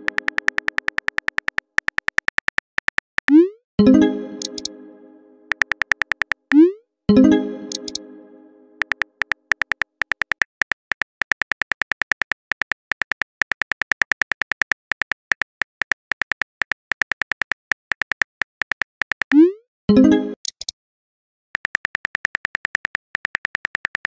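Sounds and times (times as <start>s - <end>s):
phone keyboard clicks: 0.0s - 3.4s, 4.4s - 4.7s, 5.5s - 6.6s, 7.7s - 8.0s, 8.8s - 19.4s, 21.6s - 24.0s
message chime: 3.8s - 5.5s, 7.1s - 8.8s.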